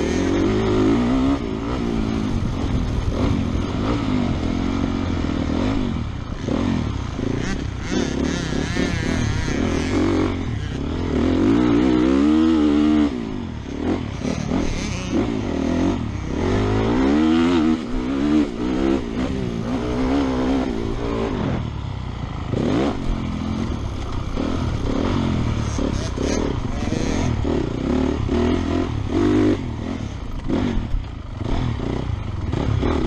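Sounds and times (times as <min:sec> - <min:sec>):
motorcycle engine revving: 0:00.0 - 0:33.0.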